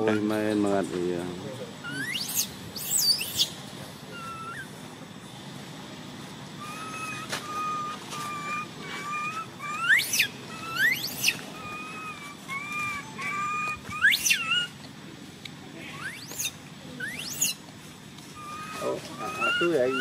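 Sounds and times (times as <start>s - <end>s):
baby monkey crying: 1.8s - 4.8s, 6.6s - 14.8s, 15.8s - 17.6s, 18.3s - 20.0s.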